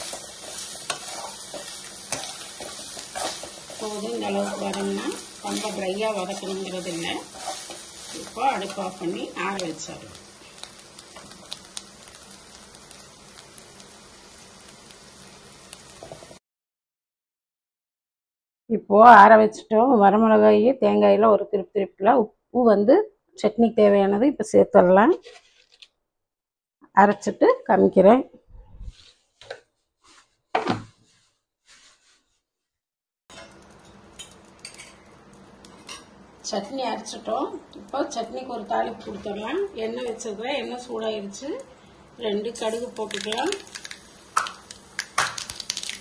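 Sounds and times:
food sizzling in a pan: 0.0s - 16.4s, 33.3s - 46.0s
small crackles: 0.0s - 16.4s, 42.6s - 46.0s.

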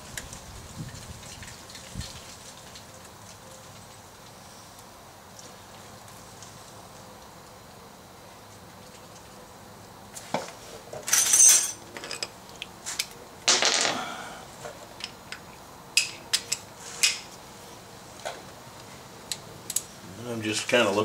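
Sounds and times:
metal hand tools clinking: 11.1s - 12.3s.

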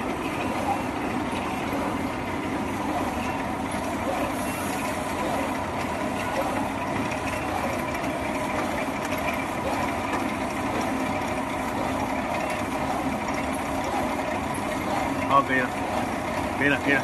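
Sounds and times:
cutting machine clattering: 2.8s - 17.0s.

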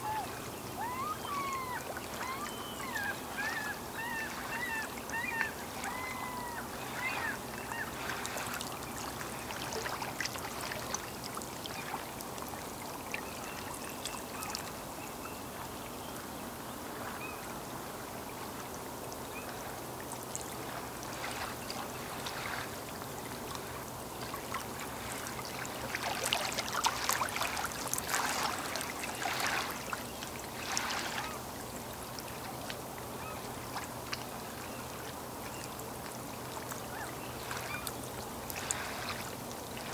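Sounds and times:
small waves lapping and splashing: 0.0s - 39.9s.

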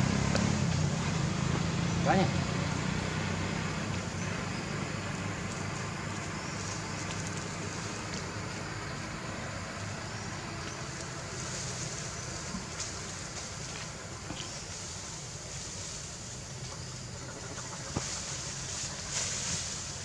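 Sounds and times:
faint high ticks: 9.7s - 11.6s.

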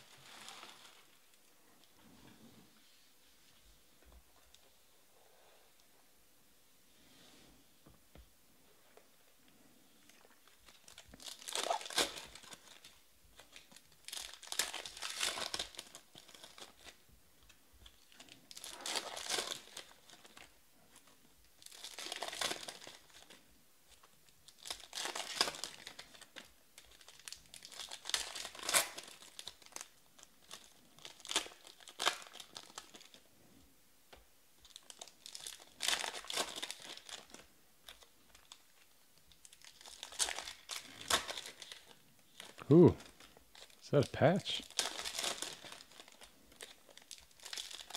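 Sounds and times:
plastic wrappers crinkling and tearing: 10.1s - 33.3s, 34.6s - 47.9s.

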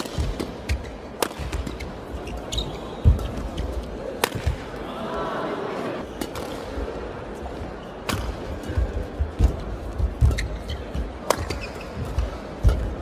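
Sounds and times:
racket striking shuttlecock: 0.0s - 1.9s, 10.2s - 13.0s
shoes squeaking on court: 0.6s - 3.9s, 10.0s - 13.0s.

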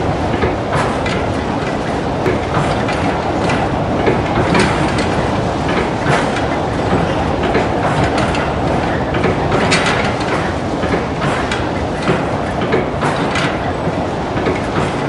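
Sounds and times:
continuous rumbling: 0.0s - 15.0s
windmill mechanism clattering: 0.0s - 15.0s.

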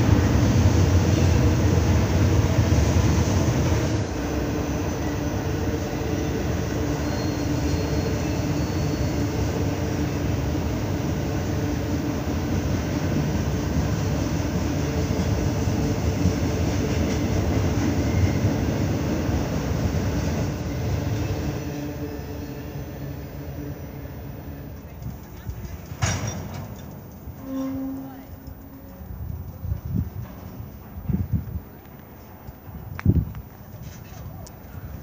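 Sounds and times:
freight train wheels on rails: 0.0s - 35.0s.

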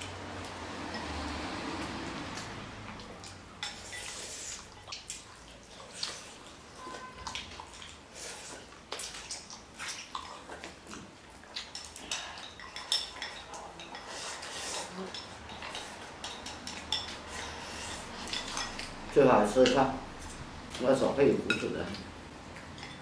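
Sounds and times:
chopsticks clicking on bowls: 18.2s - 20.9s.

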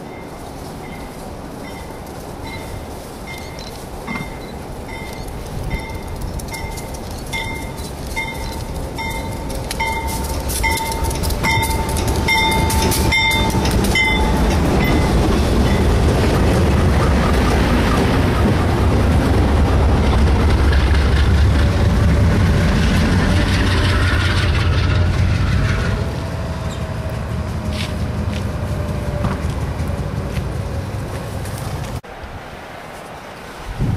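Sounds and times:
locomotive bell ringing: 0.0s - 16.1s
diesel locomotives rumbling past: 0.0s - 32.1s.

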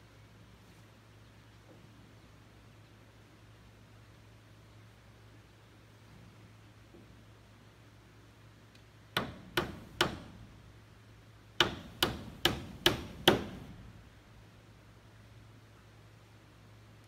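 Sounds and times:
hammer nailing wooden board: 9.2s - 10.5s, 11.6s - 13.9s.

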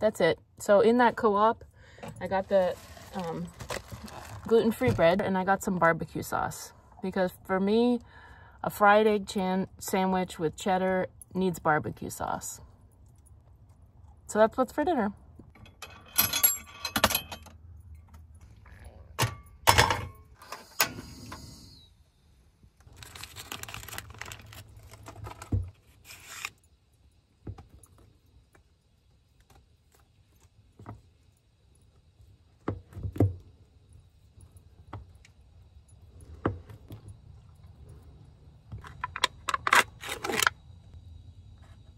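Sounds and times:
handling and rustling: 2.0s - 5.2s, 22.8s - 26.6s.

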